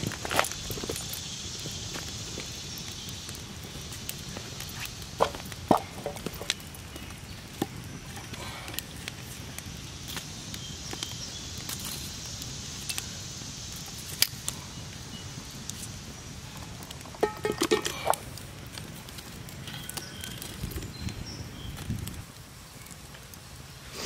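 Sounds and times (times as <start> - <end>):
campfire crackling and popping: 0.0 - 24.0
metal tongs clinking on logs: 17.2 - 18.2.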